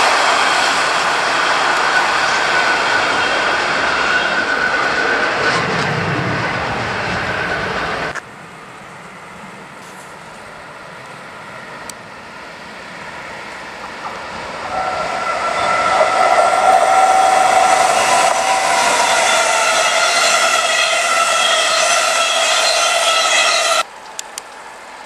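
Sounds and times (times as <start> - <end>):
train passing: 0.0 - 25.0
high multi-tone whine: 14.4 - 23.8.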